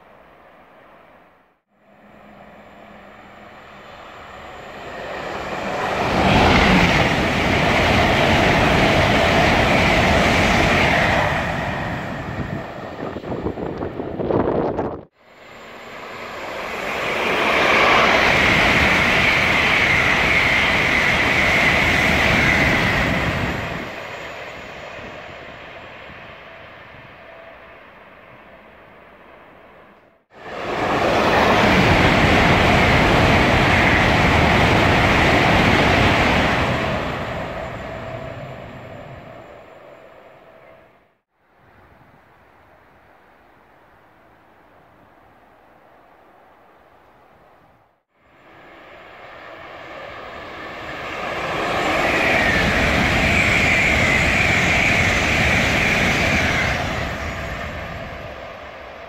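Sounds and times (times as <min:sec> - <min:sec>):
high-speed train passing: 0:00.0 - 0:59.0.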